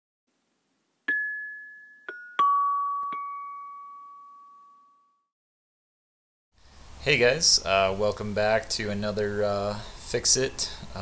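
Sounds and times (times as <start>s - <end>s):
bell-like chime jingle: 1.1s - 5.3s.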